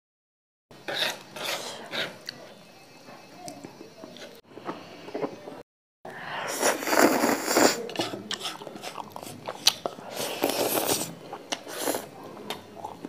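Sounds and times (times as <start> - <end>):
slurping noodles: 6.2 - 13.0
wet chewing: 6.7 - 13.0.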